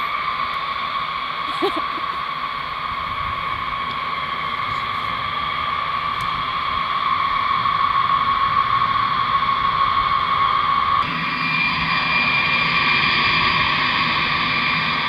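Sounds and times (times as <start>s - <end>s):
jet engines whining: 0.0s - 15.0s.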